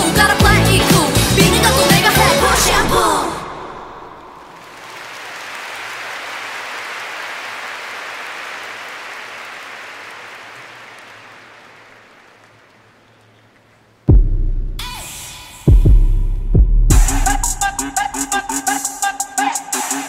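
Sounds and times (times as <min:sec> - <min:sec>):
stadium crowd applauding: 0:04.0 - 0:14.0.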